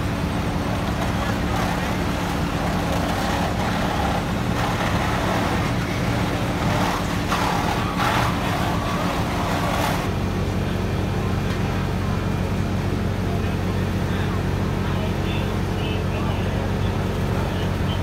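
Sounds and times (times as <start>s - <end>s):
rushing noise: 0.0s - 10.1s
fire engines idling: 0.0s - 18.0s.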